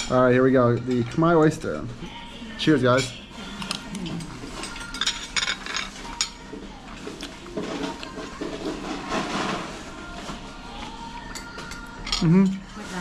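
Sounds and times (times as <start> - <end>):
cutlery clinking against plates: 2.9 - 10.4, 11.2 - 12.8.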